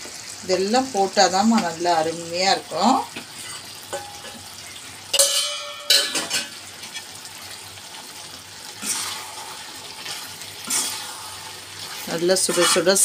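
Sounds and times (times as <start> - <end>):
chicken frying sizzle: 0.0 - 13.0
metal utensil clanking on pan: 3.1 - 4.5, 5.1 - 7.1
pan rustling scrape: 8.8 - 13.0.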